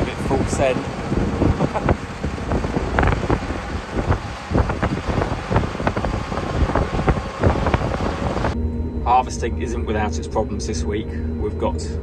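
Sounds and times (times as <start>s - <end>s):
tractor engines running: 0.0s - 8.6s
wind buffeting microphone: 0.0s - 8.6s.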